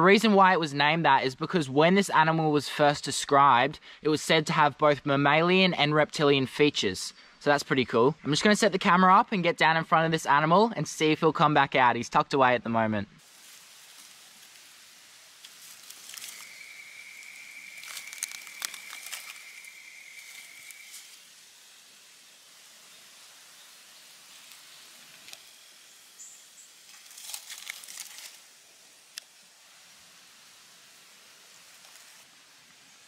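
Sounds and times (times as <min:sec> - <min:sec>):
dry leaves rustling and crackling: 0:13.2 - 0:21.7, 0:24.0 - 0:25.7, 0:26.8 - 0:29.3, 0:31.5 - 0:32.3.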